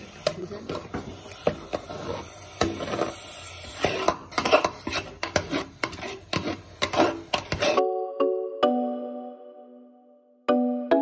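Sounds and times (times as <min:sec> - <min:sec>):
spoon scraping and knocking pot: 0:00.2 - 0:07.8.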